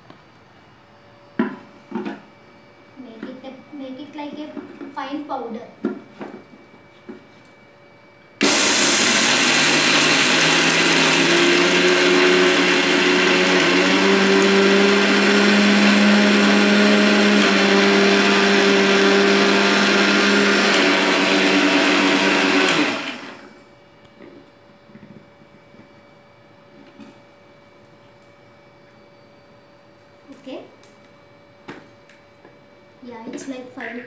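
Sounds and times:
mixer grinder motor whining: 0:08.4 - 0:23.6.

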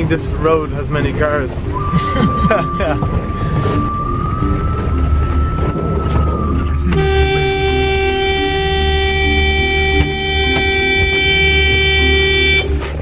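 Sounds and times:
engine rumble on rough track: 0:00.0 - 0:13.0
vehicle horn long blast: 0:06.8 - 0:13.0.

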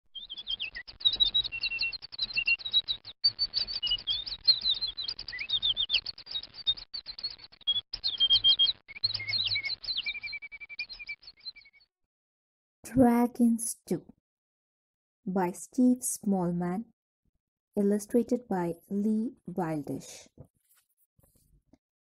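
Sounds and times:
small birds chirping: 0:00.1 - 0:11.9.

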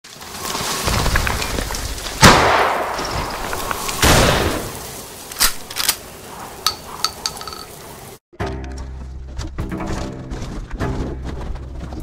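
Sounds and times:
sharp clicks and clinks: 0:06.6 - 0:07.8.

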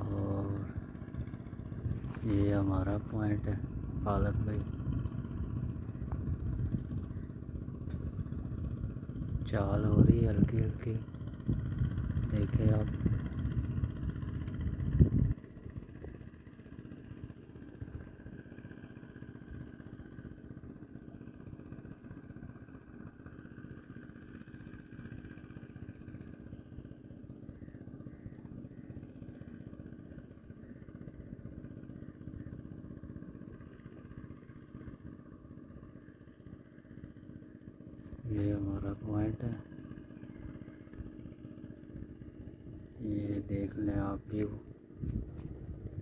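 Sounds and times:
loud low rumble: 0:00.0 - 0:16.2
distant boat engine drone: 0:00.0 - 0:46.0.

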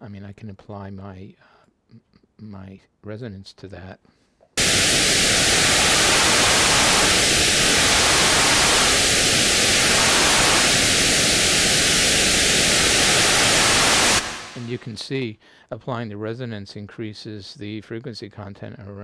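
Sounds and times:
filtered synth white noise: 0:04.6 - 0:15.0.

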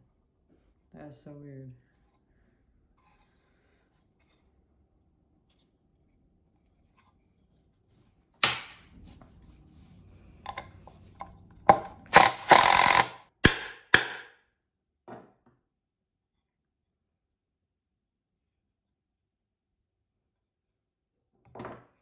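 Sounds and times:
wood knock: 0:08.4 - 0:08.8, 0:12.5 - 0:14.3
impact driver driving screw: 0:11.7 - 0:14.3.

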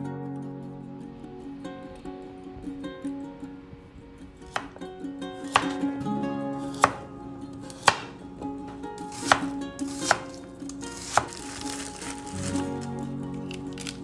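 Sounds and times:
soft background music: 0:00.0 - 0:14.0
knife chopping on cutting board: 0:04.5 - 0:04.7, 0:05.5 - 0:05.8, 0:06.7 - 0:07.0, 0:07.7 - 0:08.1, 0:09.1 - 0:10.4, 0:11.0 - 0:11.8.

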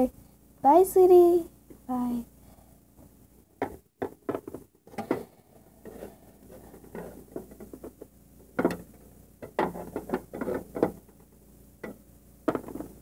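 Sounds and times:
plastic toys clicking and knocking: 0:06.5 - 0:13.0.

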